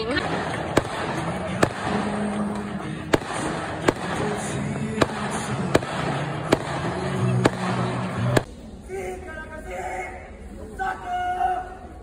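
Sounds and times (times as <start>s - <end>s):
fireworks bangs: 0.0s - 8.5s
background din with music: 0.0s - 8.8s.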